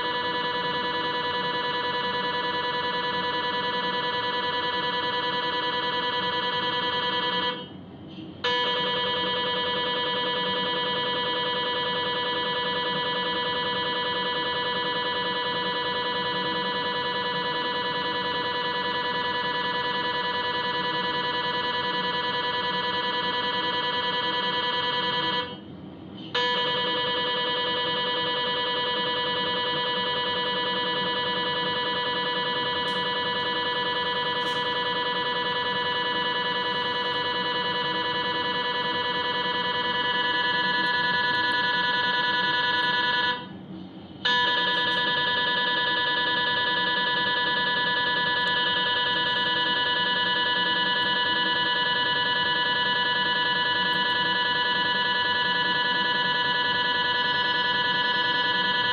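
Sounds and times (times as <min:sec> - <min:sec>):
mri scanner buzzing tone: 0:00.0 - 0:58.9.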